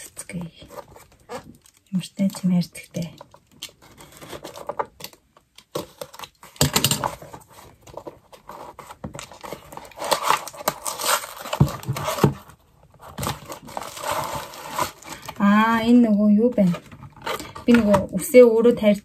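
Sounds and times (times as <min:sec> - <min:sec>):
packaging tearing and crinkling: 0:03.2 - 0:15.5.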